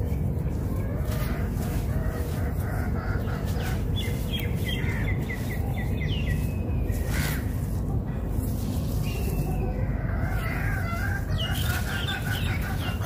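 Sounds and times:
steady low rumble: 0.0 - 13.0
bird chirping: 2.4 - 7.7, 10.9 - 13.0.

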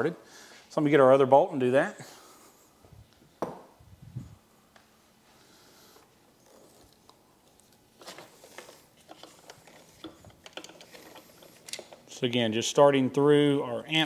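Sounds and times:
clicks and rustles of wiring: 6.4 - 12.4.

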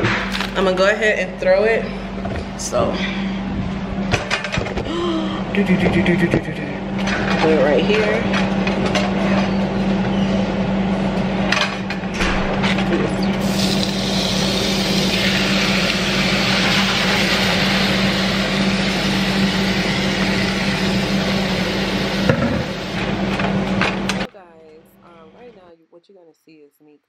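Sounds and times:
steady low hum: 0.0 - 27.0
meat sizzling in oil: 13.4 - 22.9.

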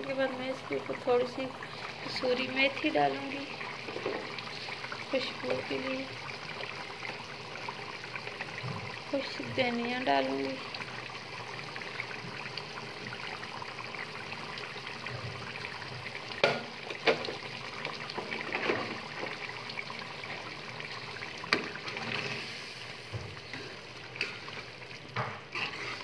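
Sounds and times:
gravy bubbling in metal pot: 0.0 - 26.0
ladle stirring gravy: 10.7 - 26.0.

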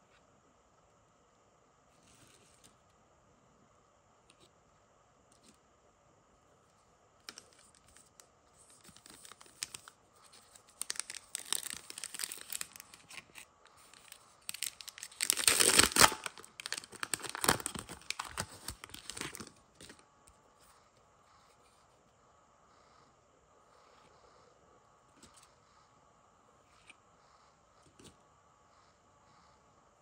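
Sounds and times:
foil pack crinkling: 7.3 - 20.0
foil pack tearing: 10.8 - 13.0, 14.5 - 19.5.

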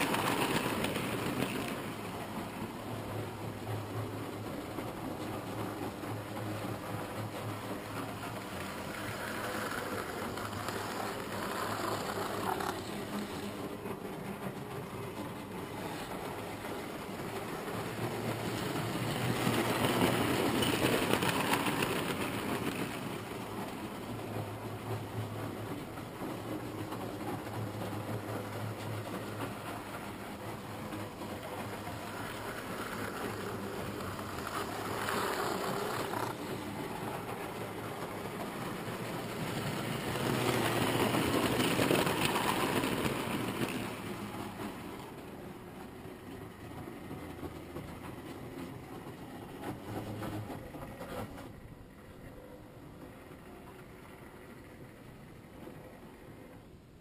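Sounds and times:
wheels rattling over rails: 0.0 - 57.0
model train motor humming: 7.6 - 13.9, 31.1 - 44.7.

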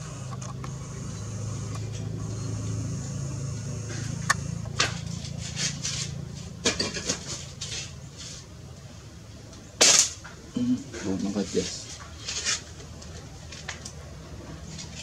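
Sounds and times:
low motor-like hum: 0.0 - 11.0.

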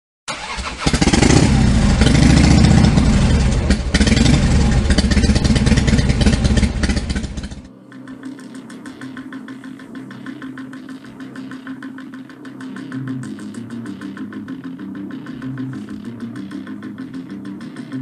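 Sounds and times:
motorcycle engine revving: 0.3 - 7.7.

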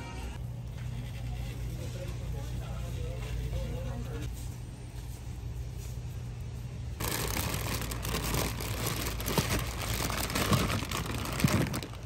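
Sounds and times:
crinkling and rustling: 7.0 - 12.0.

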